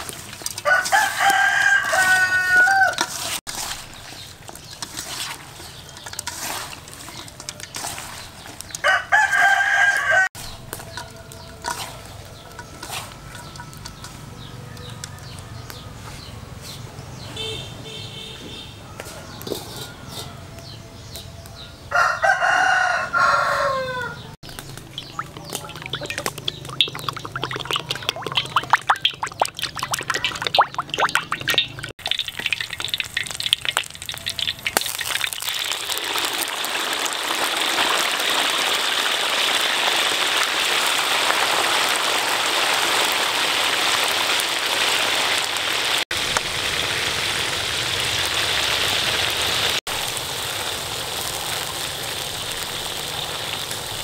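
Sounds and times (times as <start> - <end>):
frying in hot oil: 0.0 - 54.0
rooster crowing: 0.6 - 3.2, 8.8 - 15.7, 18.8 - 20.7, 21.6 - 24.4.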